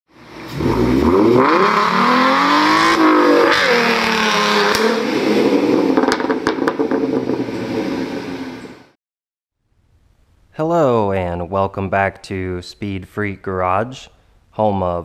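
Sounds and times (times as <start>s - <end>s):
car engine revving: 0.2s - 8.9s.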